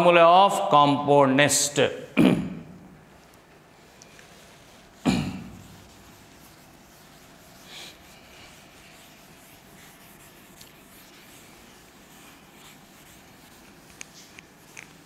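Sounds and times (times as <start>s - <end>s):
cloth scrubbing a chalkboard: 3.1s - 15.0s.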